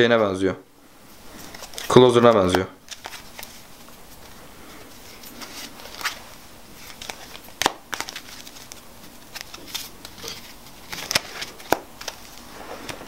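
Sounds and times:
playing cards clicking and snapping: 1.4 - 3.6, 6.8 - 13.0.

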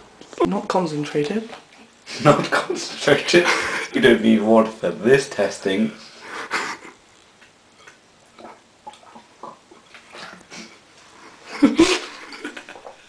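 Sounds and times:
person swallowing: 7.8 - 10.8.

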